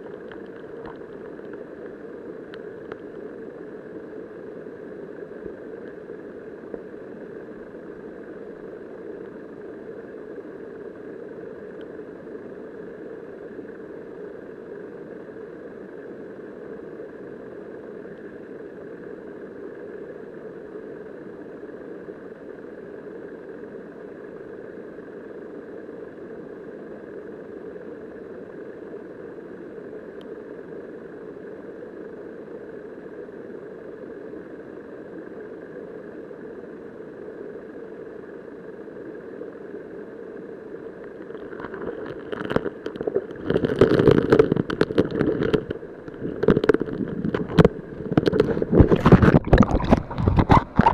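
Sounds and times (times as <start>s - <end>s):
underwater river current rushing: 0.0s - 50.9s
turbulent water knocking camera: 41.3s - 50.9s.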